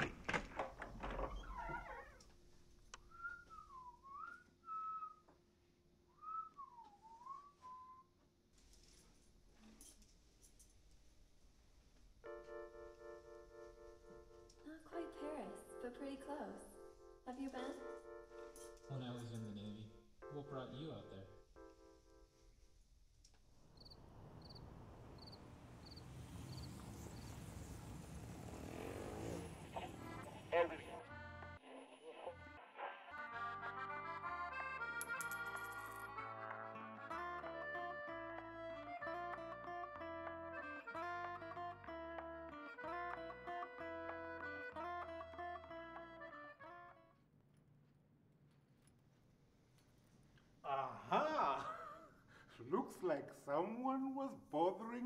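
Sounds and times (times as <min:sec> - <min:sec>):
person whistling a tune: 0:03.1 - 0:05.3, 0:06.1 - 0:08.1
cricket chirping: 0:23.6 - 0:28.1.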